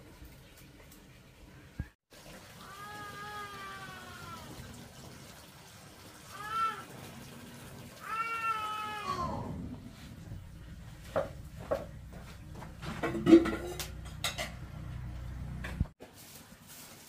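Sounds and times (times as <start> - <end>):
cat meowing: 8.0 - 9.6
knocks and clatters: 10.3 - 15.9.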